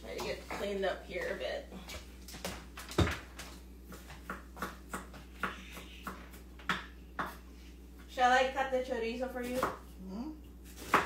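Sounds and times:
knife chopping on cutting board: 0:10.7 - 0:11.0.

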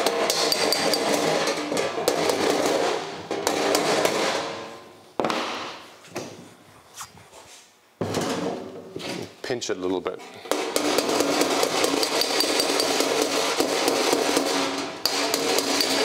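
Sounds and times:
hammer tapping sheet metal: 0:00.0 - 0:04.5, 0:10.4 - 0:16.0.

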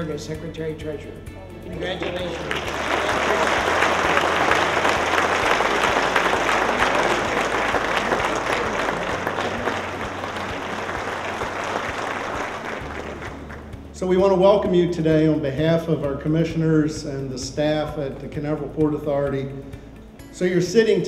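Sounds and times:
audience applauding: 0:01.8 - 0:13.8.

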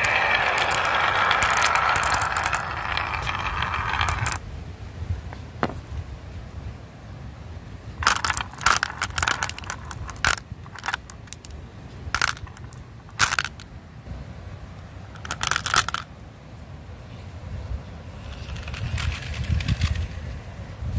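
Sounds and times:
glass marbles clacking: 0:00.0 - 0:04.4, 0:08.0 - 0:11.6, 0:12.2 - 0:13.6, 0:15.2 - 0:16.1, 0:18.2 - 0:20.0
low steady rumble: 0:00.0 - 0:20.9.

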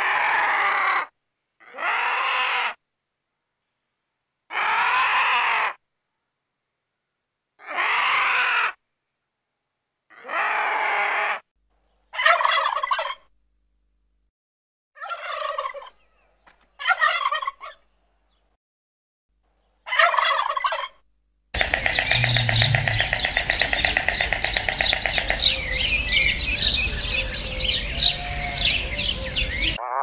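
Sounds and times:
drawn-out turkey calls: 0:12.1 - 0:13.3, 0:15.0 - 0:17.9, 0:19.8 - 0:21.0, 0:21.6 - 0:30.0
turkeys gobbling: 0:12.2 - 0:13.3, 0:15.0 - 0:16.0, 0:16.8 - 0:17.8, 0:19.9 - 0:21.0, 0:21.6 - 0:26.4.

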